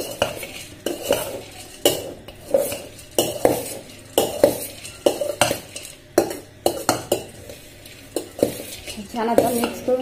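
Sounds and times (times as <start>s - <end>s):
metal spoon scraping steel pot: 0.0s - 10.0s.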